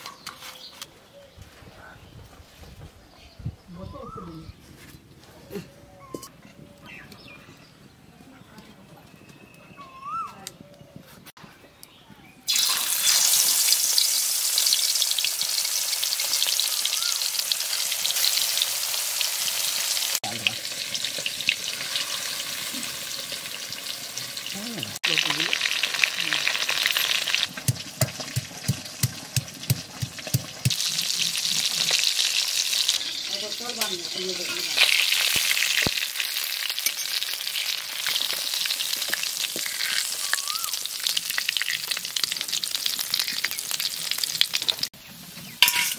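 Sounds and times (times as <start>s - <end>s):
fish sizzling in hot oil: 12.5s - 45.9s.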